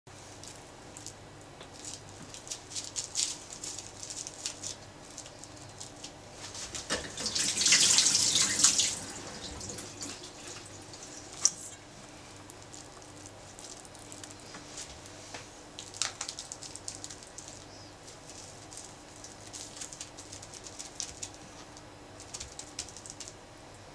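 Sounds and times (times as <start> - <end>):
faint steady hum: 0.1 - 23.9
running water: 6.9 - 11.8
sticky clicks and pats of rice: 12.4 - 23.4.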